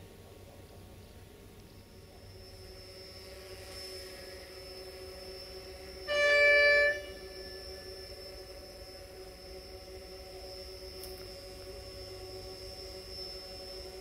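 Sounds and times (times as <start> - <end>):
faint background hum: 0.0 - 14.0
train horn blast: 6.0 - 7.9.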